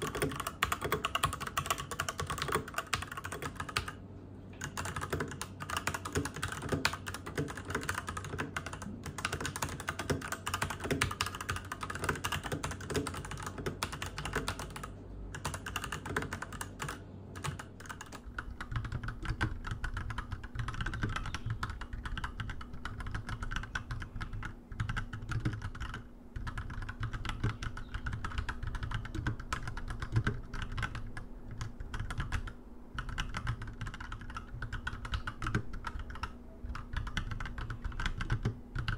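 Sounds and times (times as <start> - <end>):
mechanical keyboard typing: 0.0 - 38.9.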